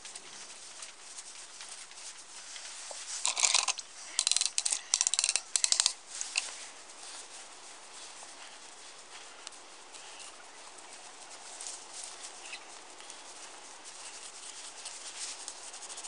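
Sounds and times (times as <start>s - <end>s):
rag scrubbing wet wire part: 3.2s - 6.5s
light clicks: 3.3s - 6.5s.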